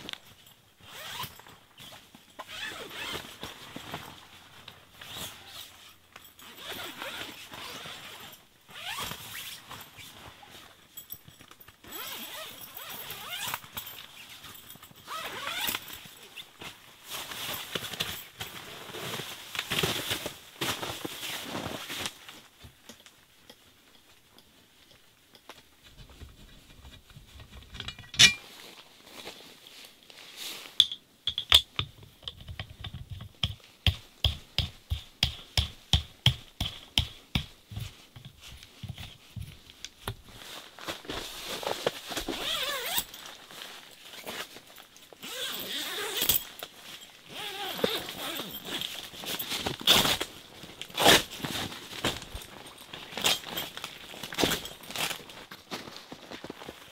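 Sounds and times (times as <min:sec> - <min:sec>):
tent fabric rustling: 0:00.8 - 0:22.6, 0:28.2 - 0:30.8, 0:37.7 - 0:56.9.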